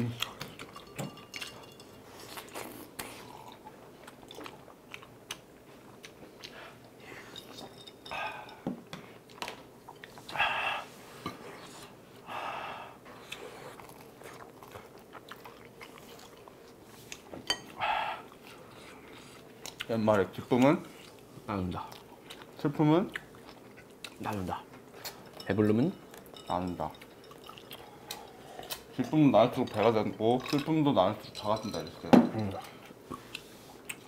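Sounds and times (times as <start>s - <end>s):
people chewing: 0.0s - 30.8s, 32.4s - 34.0s.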